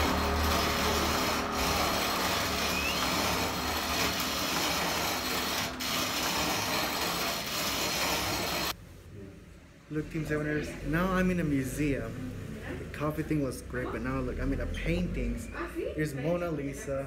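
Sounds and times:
hand coffee mill grinding: 0:00.0 - 0:08.8.

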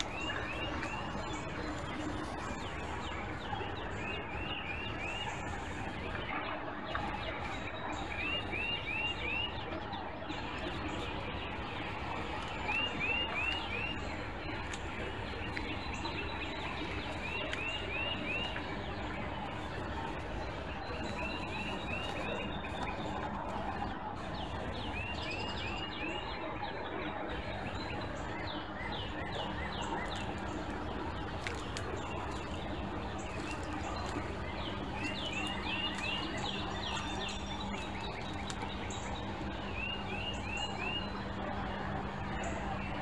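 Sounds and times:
faint low hum: 0:00.0 - 0:43.0
songbirds chirping: 0:00.0 - 0:43.0.

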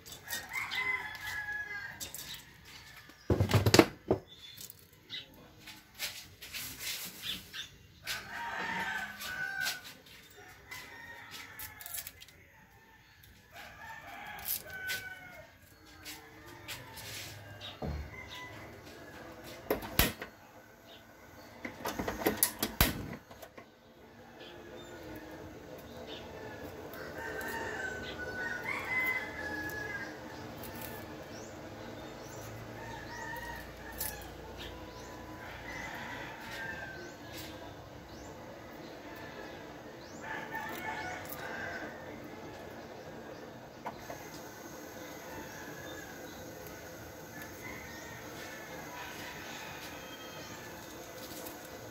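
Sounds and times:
rooster crowing: 0:00.2 - 0:03.0, 0:08.0 - 0:19.7, 0:24.5 - 0:31.5, 0:32.2 - 0:37.5, 0:38.6 - 0:43.3, 0:44.0 - 0:51.9.

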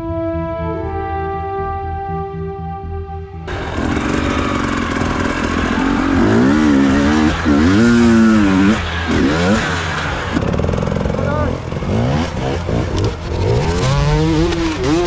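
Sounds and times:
dirt bike engine revving: 0:03.4 - 0:15.0.

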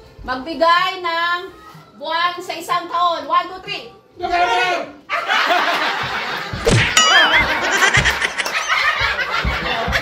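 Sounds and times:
man and woman laughing: 0:07.2 - 0:10.0.

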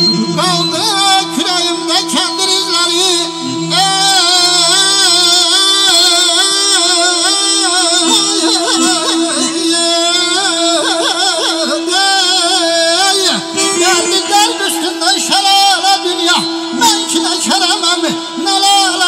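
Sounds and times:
man singing ornamented notes: 0:00.0 - 0:19.0
held accompaniment note: 0:13.0 - 0:18.0.

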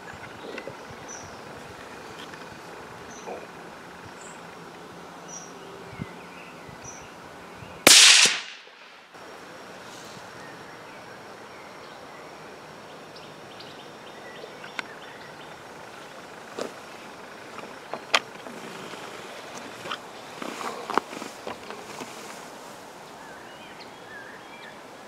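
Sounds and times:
rifle shot: 0:07.9 - 0:09.1.

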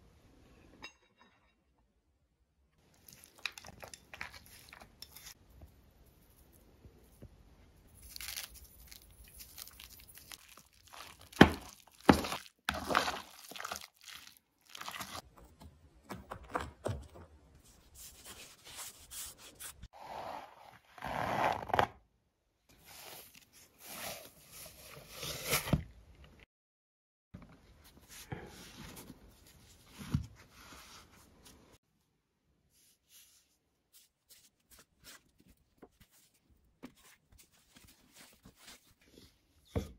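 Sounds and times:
hands handling dough: 0:02.8 - 0:19.9, 0:32.7 - 0:39.9.

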